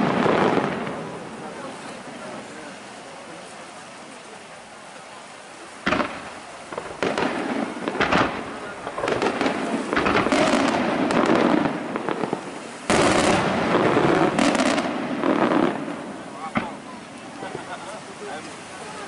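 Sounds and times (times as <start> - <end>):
crackling firework stars: 0.0 - 19.0
firework shells bursting: 5.8 - 16.8.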